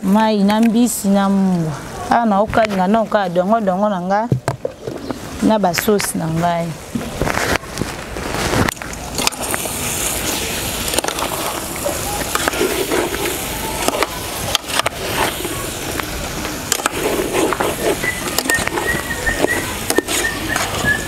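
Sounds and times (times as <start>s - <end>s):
steady hiss: 6.4s - 20.8s
metal spoon scraping a pot: 10.9s - 15.4s, 16.7s - 20.8s.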